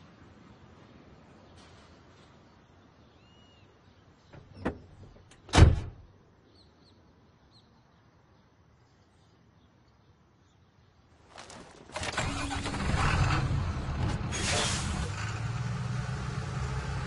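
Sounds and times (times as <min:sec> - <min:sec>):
faint bird chirps: 0:01.4 - 0:04.8, 0:06.4 - 0:11.0
vehicle door shutting thump: 0:04.4 - 0:06.0.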